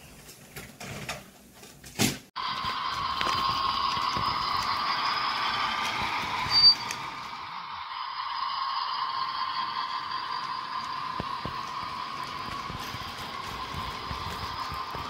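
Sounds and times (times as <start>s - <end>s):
high-pitched squeal: 2.4s - 15.0s
model train whine: 2.4s - 15.0s
wheels clicking on track: 2.5s - 7.4s, 8.2s - 15.0s.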